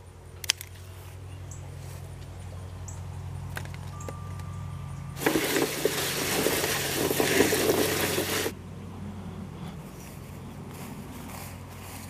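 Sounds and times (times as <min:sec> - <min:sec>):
beans rustling in plastic tub: 0:05.2 - 0:08.5.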